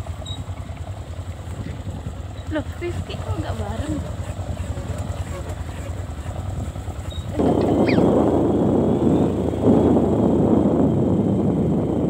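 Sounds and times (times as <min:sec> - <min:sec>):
motorcycle engine running: 0:00.0 - 0:12.0
wind rushing over microphone: 0:03.1 - 0:12.0.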